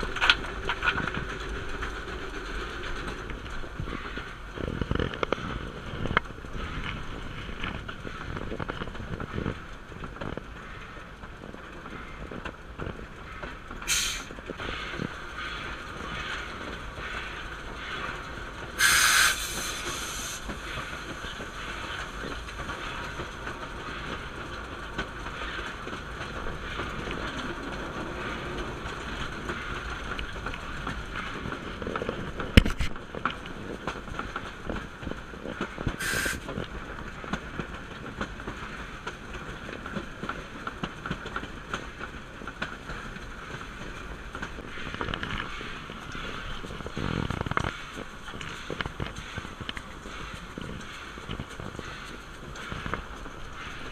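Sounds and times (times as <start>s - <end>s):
rail joints clicking: 0.0s - 53.9s
train wheels rumbling: 0.0s - 53.9s
steam hissing: 13.9s - 14.3s, 18.8s - 20.9s, 36.0s - 36.5s.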